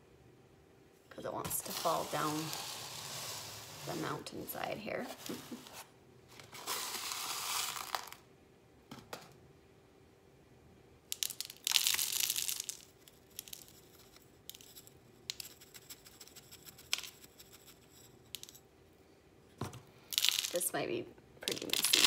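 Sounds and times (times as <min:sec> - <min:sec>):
small pieces clicking: 0:11.1 - 0:17.7, 0:18.3 - 0:18.6, 0:20.1 - 0:20.7, 0:21.4 - 0:22.0.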